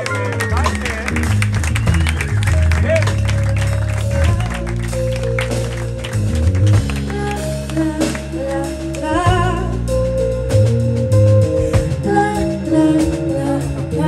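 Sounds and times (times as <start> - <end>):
drum kit: 0.0 - 14.0
electric bass: 0.0 - 14.0
person singing: 7.0 - 10.7, 11.3 - 14.0.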